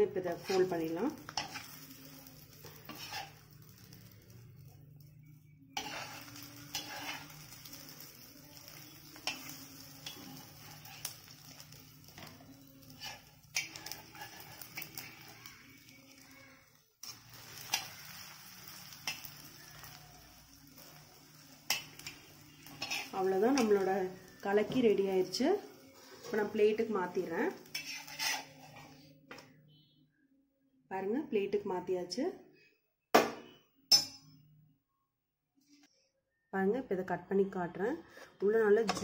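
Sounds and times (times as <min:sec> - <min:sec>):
faint sizzle: 0:00.0 - 0:30.1
spatula scraping on griddle: 0:00.2 - 0:04.4, 0:05.7 - 0:16.4, 0:17.0 - 0:29.1.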